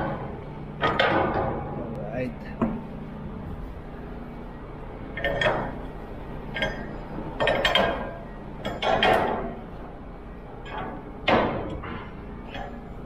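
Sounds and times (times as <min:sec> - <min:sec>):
metal bars clinking and clanging: 0:06.5 - 0:09.6.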